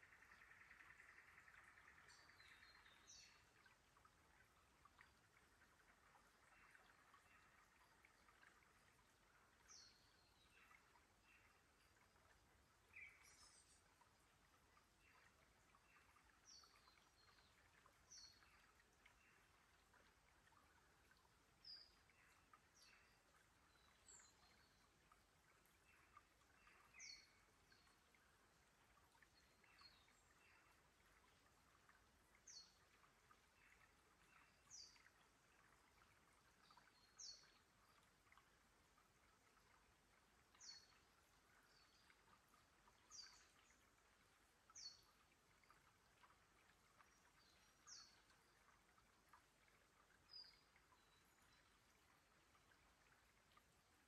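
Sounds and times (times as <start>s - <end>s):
water trickling over stones: 0.0s - 54.0s.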